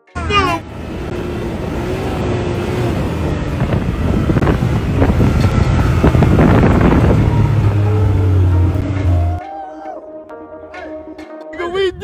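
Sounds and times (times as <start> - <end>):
vehicle engine running: 0.0 - 9.4
wind buffeting microphone: 1.0 - 8.8.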